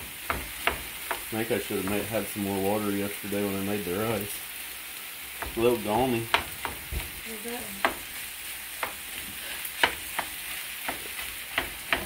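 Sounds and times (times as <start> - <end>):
spatula clacking against pan: 0.0 - 2.0, 5.3 - 7.1, 7.8 - 12.0
rice sizzling in a pan: 0.0 - 12.0.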